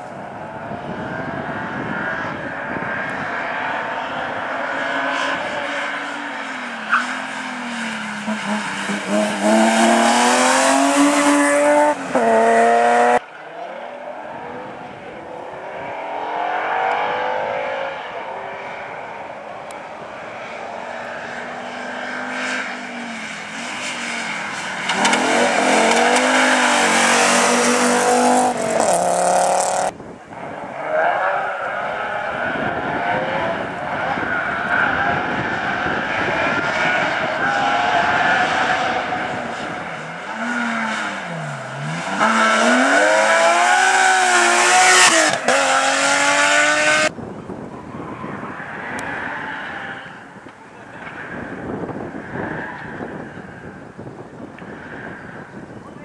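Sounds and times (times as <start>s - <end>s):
rally car engines revving: 0.0s - 55.9s.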